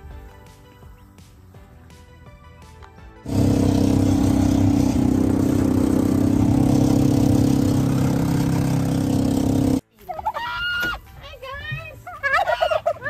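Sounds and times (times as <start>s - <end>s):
vehicle engine running loudly: 3.3s - 9.8s.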